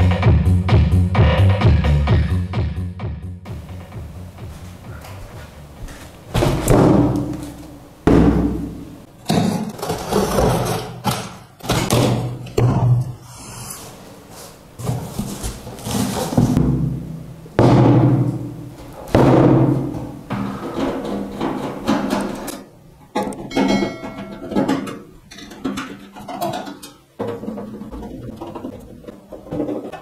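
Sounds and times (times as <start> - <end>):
background music: 0.0 - 9.1
deep drum hits: 6.3 - 9.0, 16.5 - 20.4.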